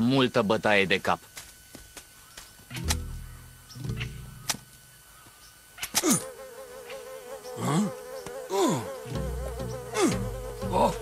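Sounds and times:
flying insects buzzing: 0.0s - 11.0s
low held sounds: 2.7s - 5.1s.

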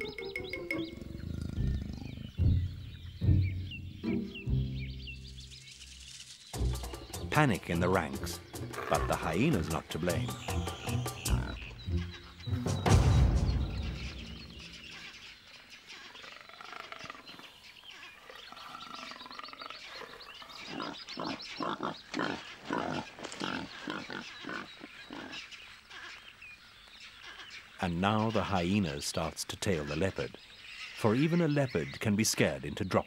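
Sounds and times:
leopard growl: 0.8s - 2.9s, 8.7s - 9.9s, 18.2s - 25.4s.

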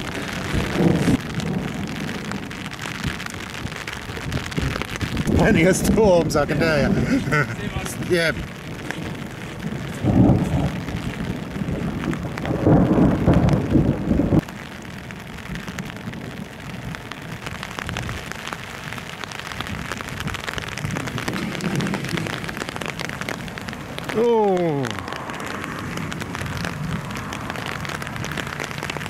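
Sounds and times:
loud thunder rumble: 0.0s - 14.5s, 19.6s - 24.2s
rain pattering: 0.0s - 29.0s.

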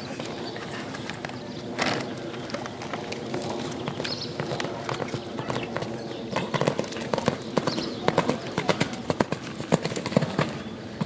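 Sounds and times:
horse hoofbeats cantering: 2.2s - 11.0s.

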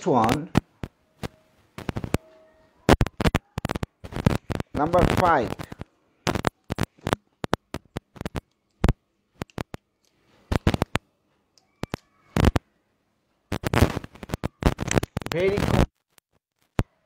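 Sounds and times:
sharp clicks and taps: 0.2s - 2.2s, 2.9s - 12.6s, 13.5s - 15.3s.

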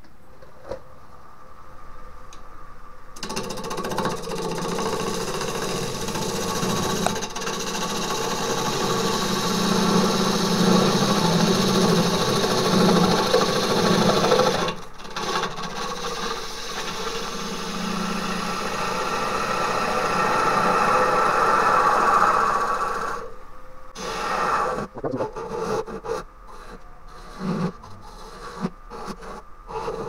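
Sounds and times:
wood lathe humming: 3.2s - 23.3s.

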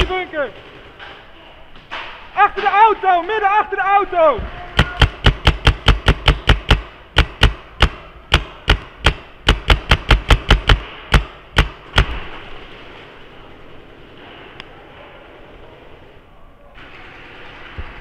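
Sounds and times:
paintball marker shots: 4.8s - 12.4s.

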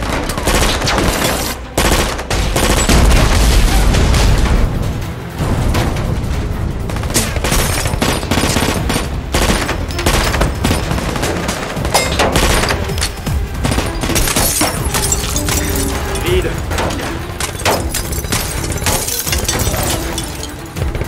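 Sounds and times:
bullets hitting car and glass: 7.1s - 21.0s.

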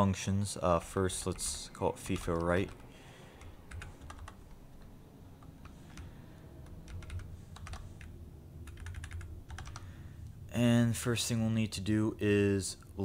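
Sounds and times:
keyboard typing: 1.1s - 9.9s.

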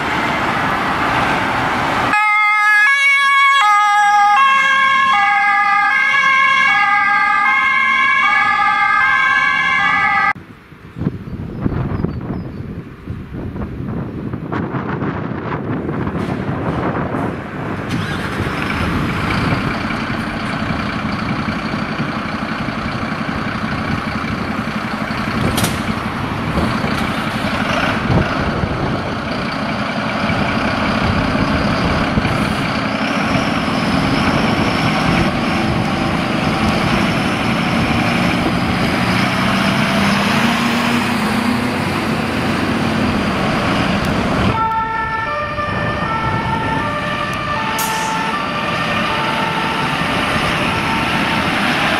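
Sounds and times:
diesel engines running: 0.0s - 11.1s, 12.8s - 51.9s
two-tone fire engine siren: 2.1s - 10.4s, 34.5s - 51.9s
engine revving: 17.7s - 44.7s, 45.6s - 51.9s.

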